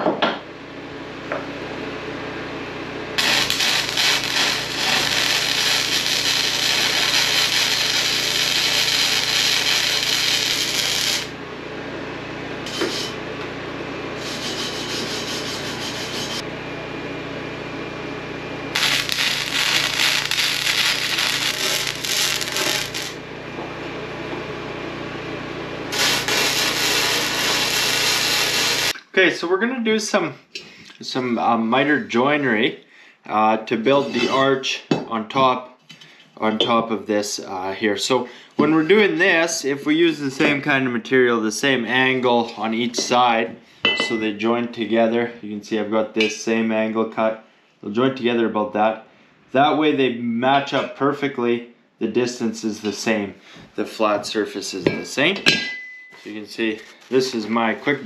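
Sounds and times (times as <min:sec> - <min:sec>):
arc welding crackle: 0:03.2 - 0:11.4, 0:12.7 - 0:13.2, 0:18.7 - 0:23.3, 0:25.9 - 0:29.0.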